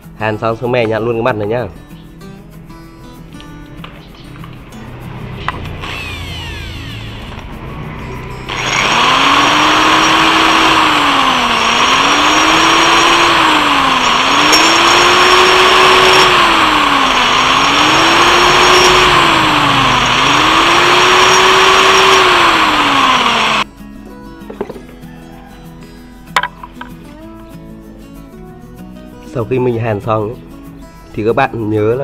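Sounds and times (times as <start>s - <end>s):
electric grinder whining: 5.5s - 23.7s.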